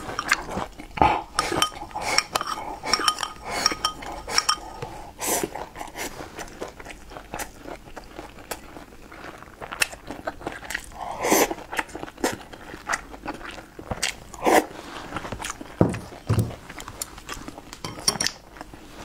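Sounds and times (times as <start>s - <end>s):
person chewing food: 0.0s - 19.0s.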